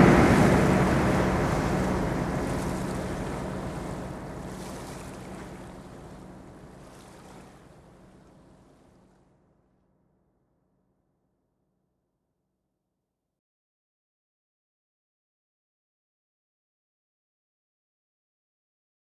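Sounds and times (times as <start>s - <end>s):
rushing surf-like noise: 0.0s - 7.5s.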